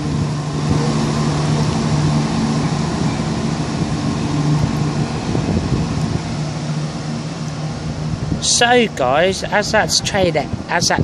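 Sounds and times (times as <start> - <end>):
diesel train engine humming: 0.0 - 11.0.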